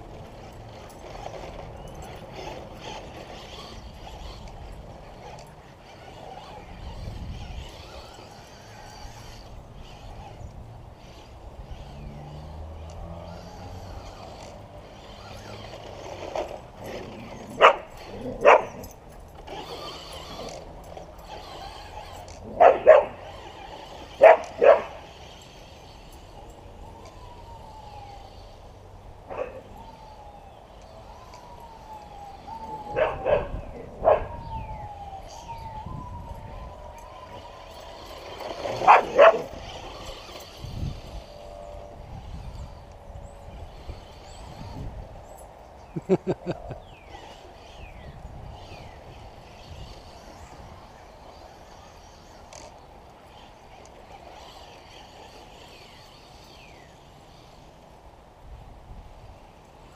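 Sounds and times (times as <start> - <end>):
dog barking: 18.4 - 18.8, 22.6 - 23.2, 24.2 - 24.9, 38.9 - 39.5.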